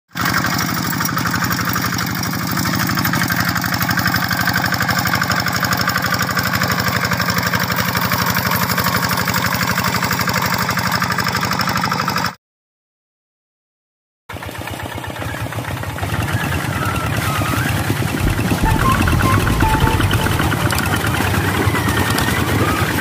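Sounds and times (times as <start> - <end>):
diesel engine chugging: 15.6 - 23.0.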